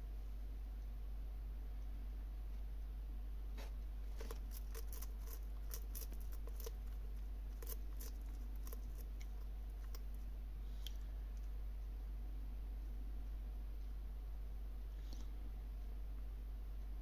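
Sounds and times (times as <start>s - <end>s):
lizard crunching insect: 4.1s - 10.2s.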